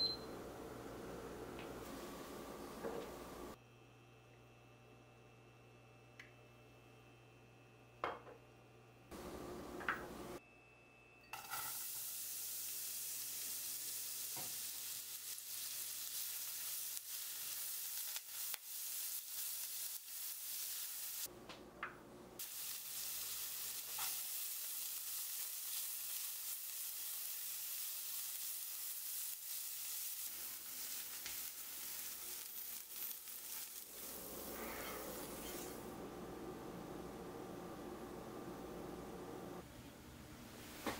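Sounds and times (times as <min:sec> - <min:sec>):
onion sizzling in a frying pan: 0:11.4 - 0:21.3, 0:22.4 - 0:36.0.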